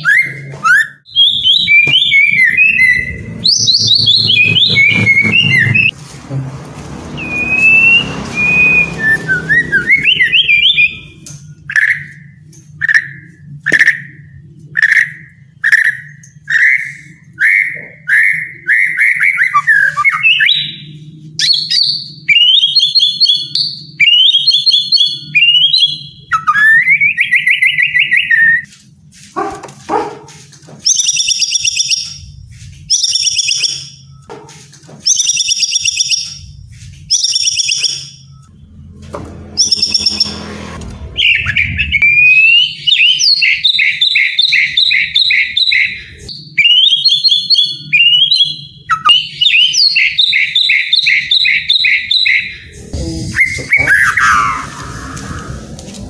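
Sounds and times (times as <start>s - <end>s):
songbird singing: 7.2s - 28.6s, 35.1s - 55.8s.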